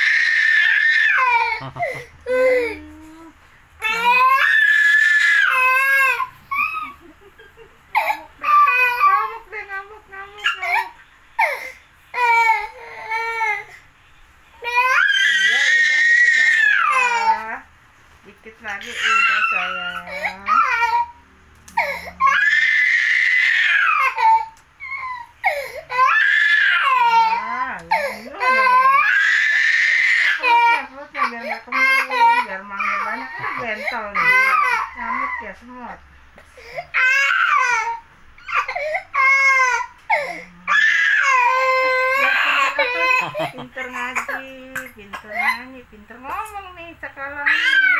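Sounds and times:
baby crying: 0.0 - 3.2, 3.8 - 7.1, 7.9 - 9.5, 14.6 - 17.5, 18.8 - 21.2, 21.8 - 35.5, 36.6 - 44.5, 47.4 - 47.9.

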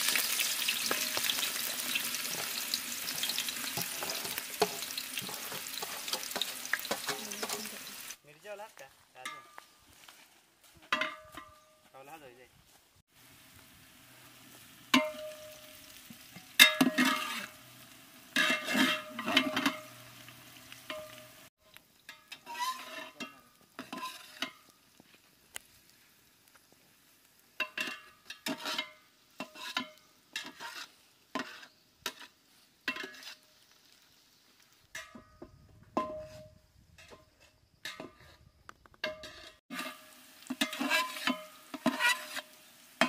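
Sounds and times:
onions sizzling in oil: 0.0 - 8.2, 13.1 - 35.6, 39.2 - 43.0
metal spatula scraping pot: 0.2 - 8.2, 16.4 - 20.1, 22.1 - 24.7, 27.6 - 33.5, 36.0 - 42.6.

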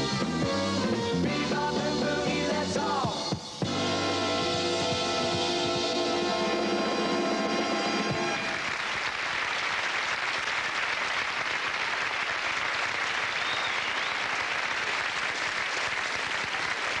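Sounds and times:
music: 0.0 - 8.6
audience applauding: 6.0 - 17.0.

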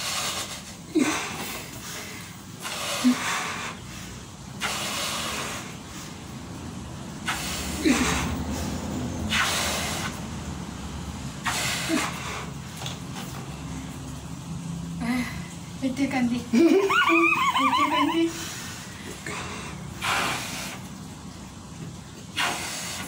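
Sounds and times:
people blowing up balloons: 0.0 - 6.4, 7.2 - 10.4, 11.4 - 13.3, 16.9 - 21.0, 22.3 - 23.0.

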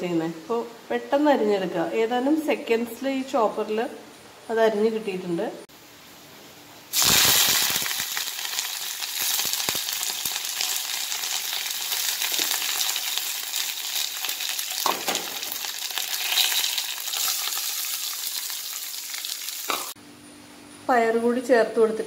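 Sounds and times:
frying in hot oil sizzling: 6.9 - 20.0.

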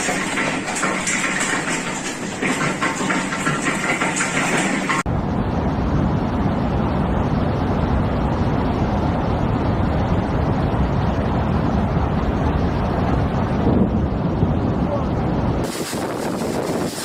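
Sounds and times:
storm wind buffeting microphone: 0.0 - 17.0
hiss of wind-driven rain: 5.1 - 17.0.

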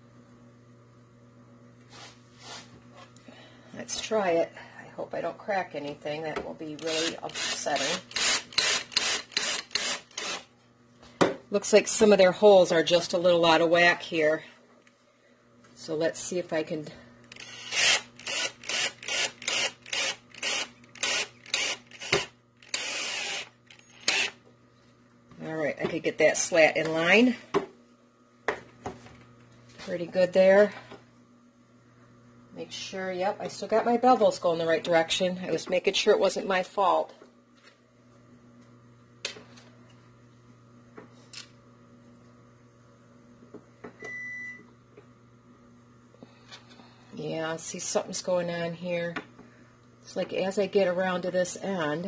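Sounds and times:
power drill driving screw: 6.8 - 10.5, 17.3 - 24.4
dishwasher humming: 43.5 - 44.6.

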